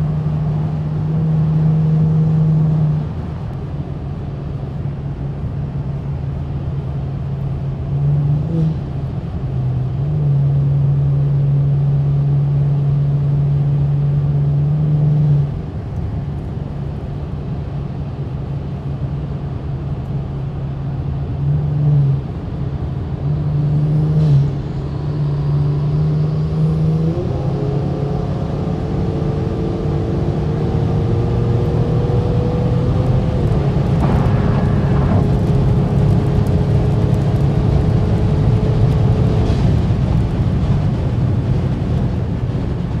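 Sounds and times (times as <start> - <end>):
road and wind noise: 0.0 - 43.0
car engine accelerating: 21.4 - 43.0.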